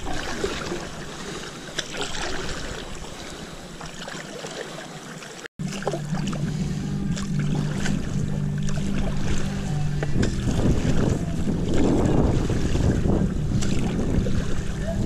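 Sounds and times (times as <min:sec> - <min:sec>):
water splashing from paddle strokes: 0:00.0 - 0:15.0
steady low hum: 0:05.6 - 0:15.0
wind on microphone: 0:06.1 - 0:15.0.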